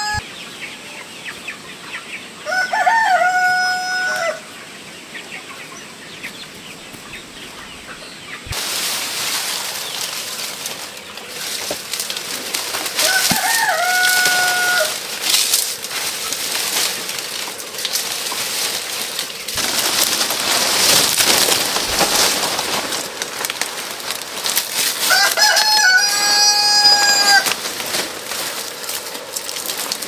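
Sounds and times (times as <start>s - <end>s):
rooster crowing: 0.0s - 0.2s, 2.4s - 4.5s, 12.9s - 15.0s, 25.0s - 27.6s
crackling hissing noise: 6.4s - 30.0s.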